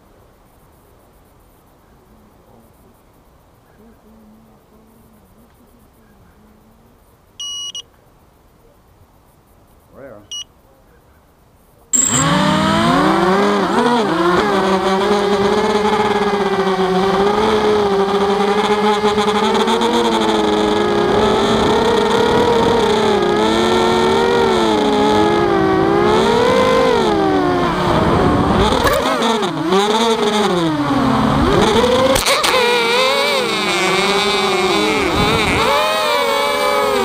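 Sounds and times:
quadcopter motors whining: 12.0s - 37.0s.

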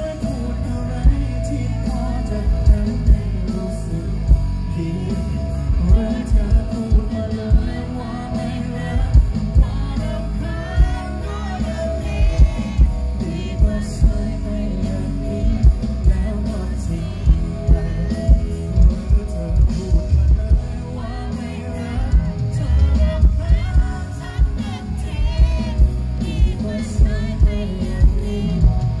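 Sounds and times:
live band music: 0.0s - 29.0s
man singing into a microphone: 0.0s - 29.0s
strong bass: 0.0s - 29.0s.

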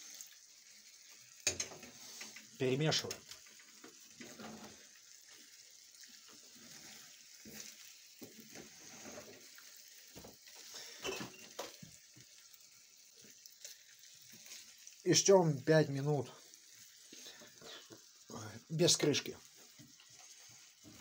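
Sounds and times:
dumplings sizzling in a pan: 0.0s - 21.0s
wooden spatula scraping a pan: 3.5s - 11.8s, 19.5s - 21.0s.

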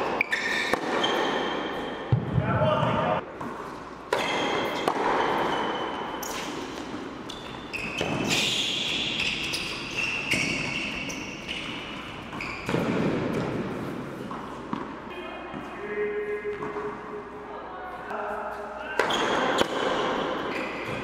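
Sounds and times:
ball bouncing on court: 0.2s - 8.5s, 9.2s - 15.0s, 18.9s - 21.0s
racket striking ball: 0.5s - 2.3s, 3.4s - 7.1s.

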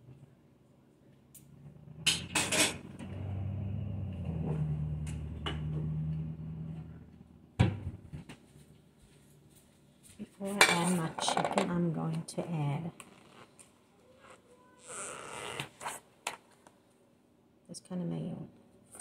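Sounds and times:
low steady hum: 0.0s - 13.1s.

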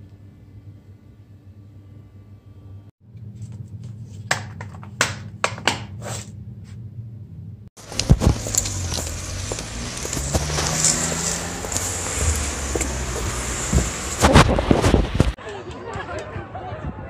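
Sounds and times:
outdoor street noise: 6.0s - 17.0s
thumps on microphone: 13.8s - 15.4s.

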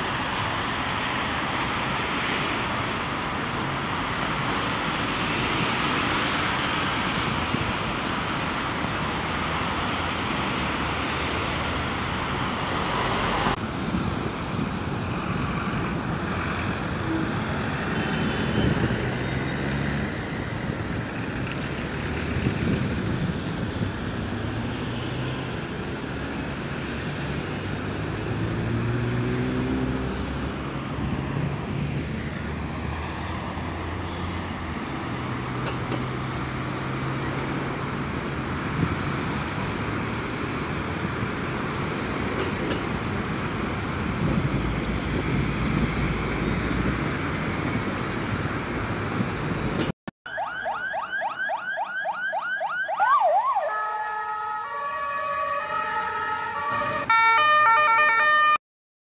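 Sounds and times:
heavy highway traffic: 0.0s - 58.6s
police sirens wailing: 50.3s - 58.6s.

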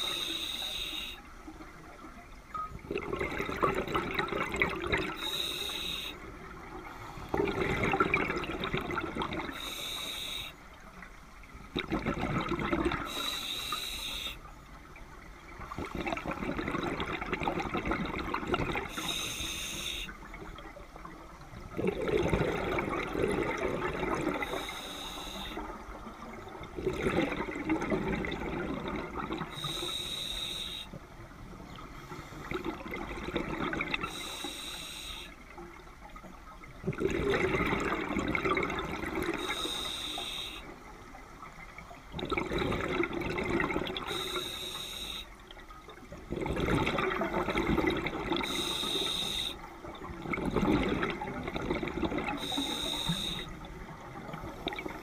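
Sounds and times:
regulator inhale hiss: 0.0s - 1.2s, 5.2s - 6.2s, 9.6s - 10.6s, 13.0s - 14.4s, 18.9s - 20.2s, 24.4s - 25.6s, 29.5s - 31.0s, 34.1s - 35.4s, 39.4s - 40.7s, 44.1s - 45.4s, 48.4s - 49.6s, 52.4s - 53.6s
exhaust bubbling underwater: 2.8s - 5.3s, 6.3s - 9.7s, 11.7s - 13.2s, 15.6s - 19.1s, 21.6s - 24.7s, 25.5s - 30.2s, 31.8s - 34.2s, 36.7s - 40.8s, 42.0s - 44.6s, 45.8s - 55.0s.

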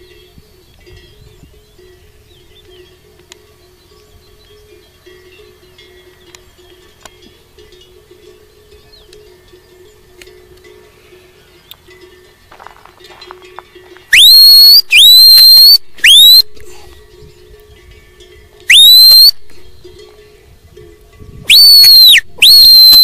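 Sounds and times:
shepherd whistling: 14.1s - 16.5s, 18.7s - 19.4s, 21.5s - 23.0s.

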